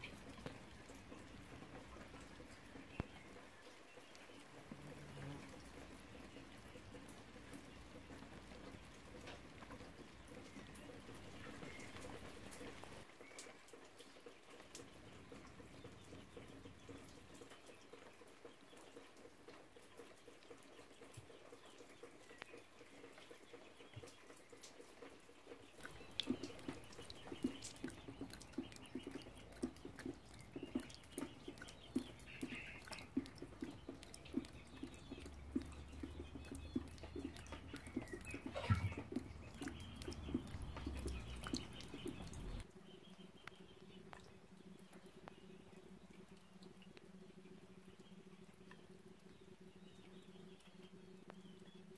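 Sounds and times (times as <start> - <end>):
rain dripping and pattering: 0.0 - 51.9
faint bird chirps: 25.7 - 51.9.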